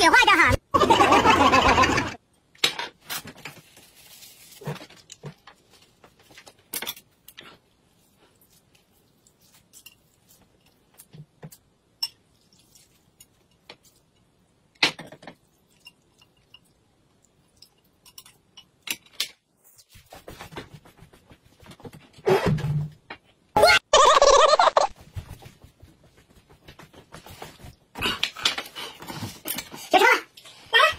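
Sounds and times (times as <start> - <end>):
chopsticks and bowls clinking: 9.2 - 11.1, 15.4 - 18.8.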